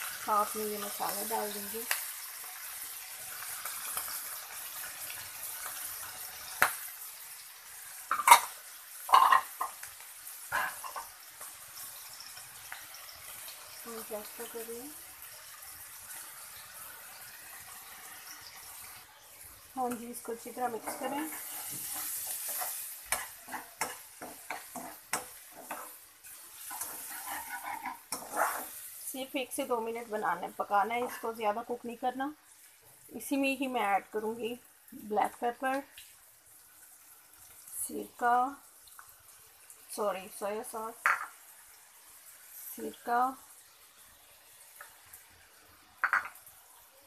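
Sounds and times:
food sizzling in a wok: 0.0s - 47.0s
metal spatula scraping a pan: 19.8s - 29.0s.

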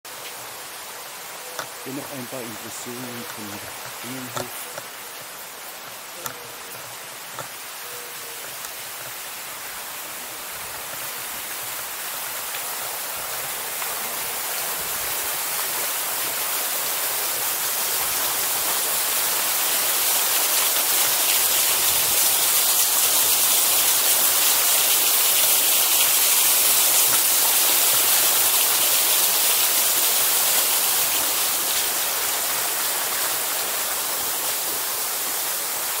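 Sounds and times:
fountains splashing: 0.1s - 36.0s.

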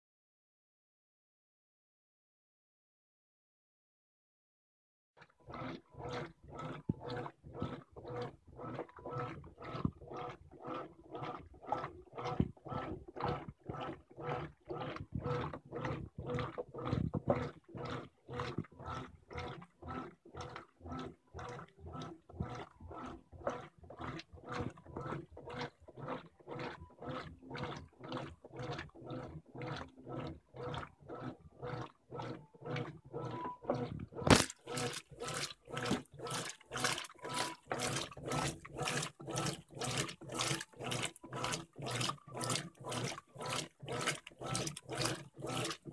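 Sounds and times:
washing machine agitating: 5.2s - 45.9s
water swishing: 21.6s - 45.9s.

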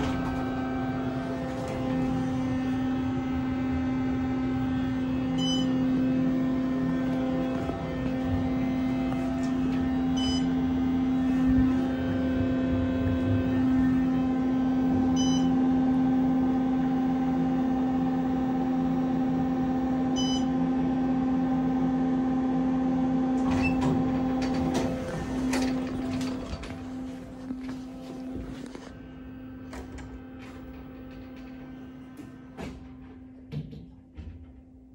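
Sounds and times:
elevator hum: 0.0s - 34.9s
elevator clicks and knocks: 29.7s - 34.9s.

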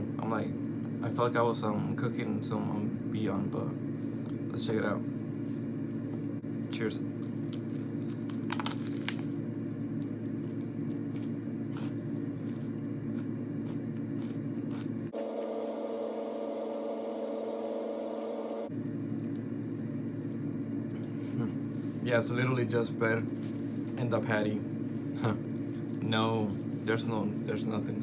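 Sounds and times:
low background hum: 0.0s - 28.0s
person chewing sandwich: 7.2s - 21.9s.

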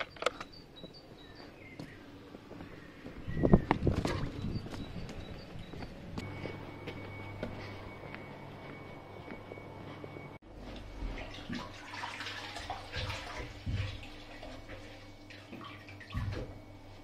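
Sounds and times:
water sloshing: 10.7s - 16.6s.

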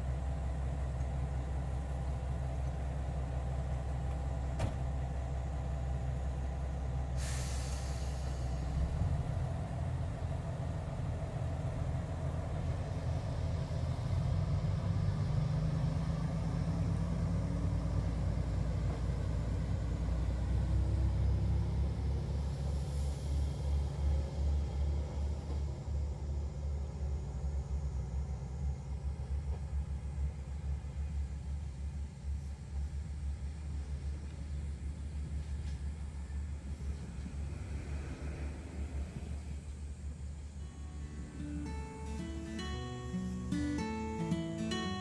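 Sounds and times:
heavy vehicle engine rumbling: 0.0s - 45.0s
air hissing: 7.2s - 8.8s, 22.4s - 24.6s.

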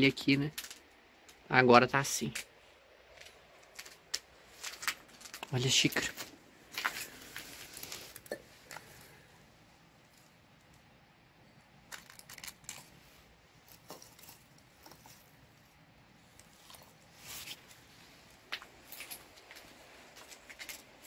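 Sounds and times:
faint clicks and light crunches: 3.1s - 9.1s, 18.4s - 21.0s.

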